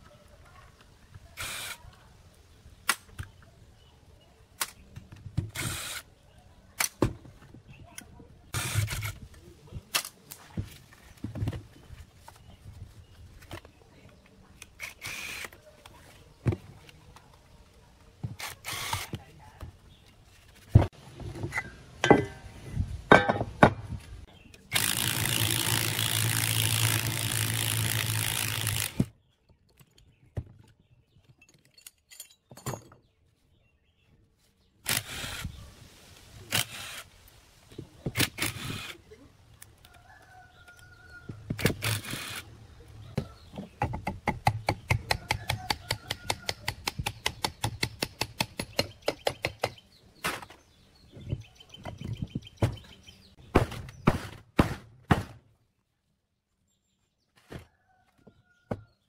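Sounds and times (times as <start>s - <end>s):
cordless drill with wire brush: 1.4s - 1.8s, 5.6s - 6.1s, 14.8s - 15.6s, 18.4s - 19.1s, 24.7s - 29.1s, 34.9s - 35.6s, 36.5s - 37.1s, 38.2s - 39.0s, 41.6s - 42.5s
metal clinks and knocks: 31.2s - 33.1s.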